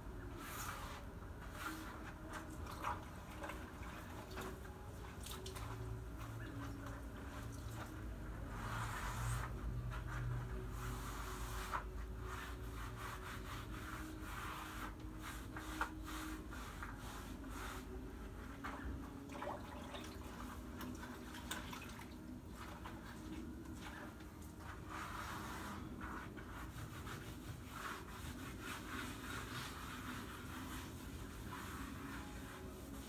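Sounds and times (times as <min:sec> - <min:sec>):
hands scrubbing grout on tiles: 0:22.6 - 0:33.0.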